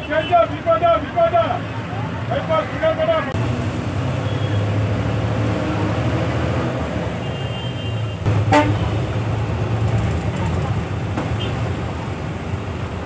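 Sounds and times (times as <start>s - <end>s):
bus engine running: 0.0s - 13.0s
vehicle horn toot: 4.2s - 4.7s, 7.2s - 9.1s, 11.4s - 11.6s.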